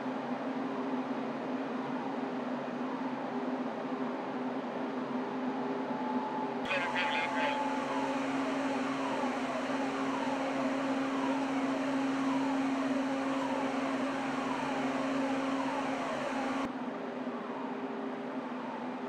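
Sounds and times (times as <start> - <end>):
faint falling whines: 5.9 - 16.7
machinery hum: 6.7 - 16.7.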